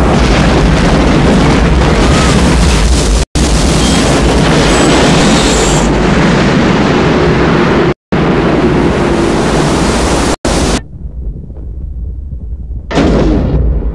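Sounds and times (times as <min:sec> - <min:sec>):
rushing roar of giant wave: 0:00.0 - 0:10.8
muffled low rumble: 0:10.5 - 0:13.9.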